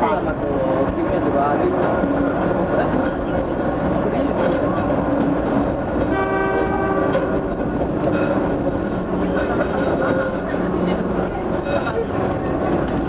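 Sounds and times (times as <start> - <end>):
train wheel and motor noise: 0.0 - 13.0
train horn: 6.1 - 7.6.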